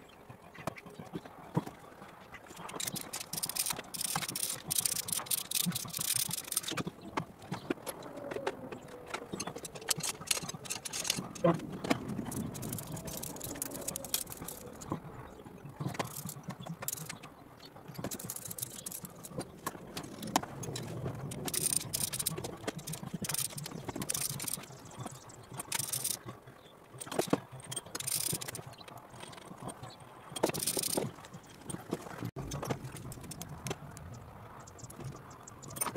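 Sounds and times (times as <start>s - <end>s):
metal clinks and rattles: 2.5s - 8.1s, 9.3s - 15.0s, 15.8s - 17.3s, 17.9s - 26.3s, 27.0s - 33.6s
ratchet spanner clicking: 2.8s - 6.8s, 12.3s - 14.8s, 16.0s - 17.2s, 18.0s - 19.3s, 20.0s - 24.7s, 25.6s - 26.2s, 27.8s - 28.6s, 30.4s - 31.1s.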